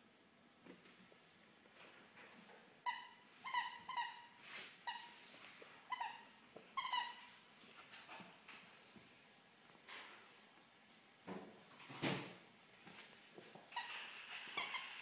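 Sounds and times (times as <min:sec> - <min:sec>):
squeaky toy squeaking: 0:02.8 - 0:05.2, 0:05.9 - 0:06.2, 0:06.8 - 0:07.3, 0:13.8 - 0:15.0
small taps and rustles: 0:09.7 - 0:14.2.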